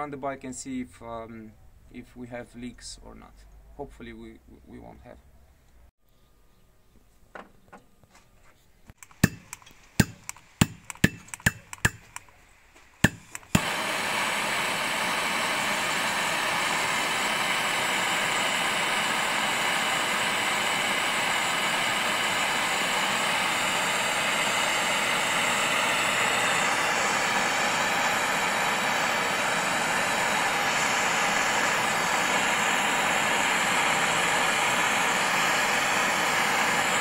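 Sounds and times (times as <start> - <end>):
sharp clicks: 8.9 - 13.6
gas torch hissing: 9.0 - 37.0.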